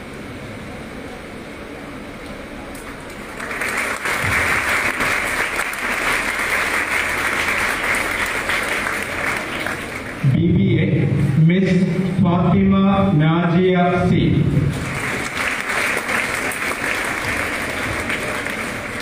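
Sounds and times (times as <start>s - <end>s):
audience applauding: 2.8s - 10.2s, 14.7s - 19.0s.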